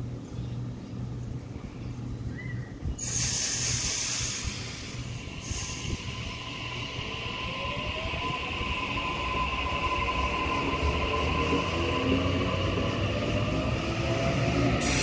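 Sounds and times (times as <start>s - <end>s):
train running rumble: 0.0s - 15.0s
air hiss: 3.0s - 6.7s, 14.8s - 15.0s
steady high tone: 5.0s - 14.1s.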